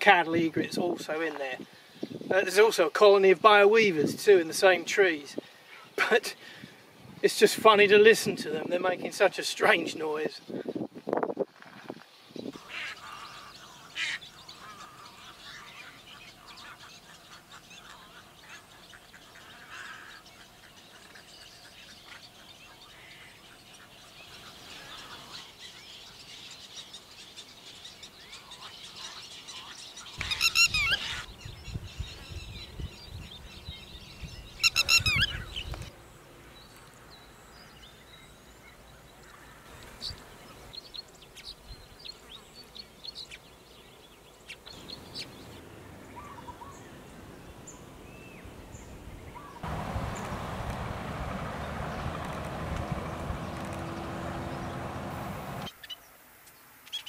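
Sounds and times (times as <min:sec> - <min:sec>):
colony of birds calling: 0:11.9 - 0:56.0
faint bird chirps: 0:12.3 - 0:35.8
shrill rapid bird calls: 0:12.6 - 0:35.8.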